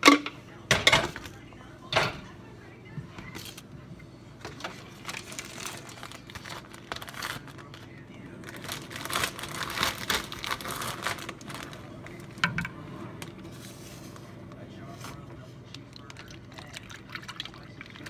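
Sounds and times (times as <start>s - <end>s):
plastic bag crinkling: 4.6s - 12.4s.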